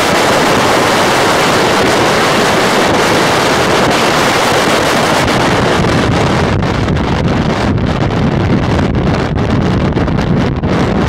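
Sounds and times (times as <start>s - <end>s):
wind rushing over microphone: 0.0s - 11.0s.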